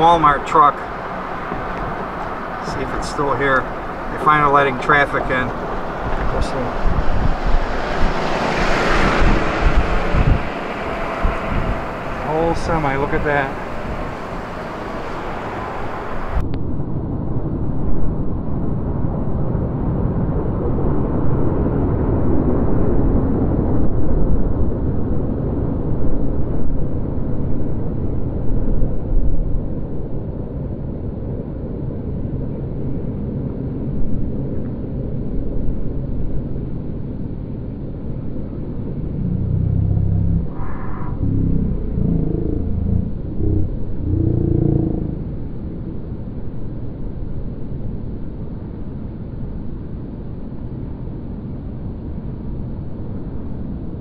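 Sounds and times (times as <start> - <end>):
car engine and tyres rumbling: 0.0 - 16.5, 31.3 - 54.0.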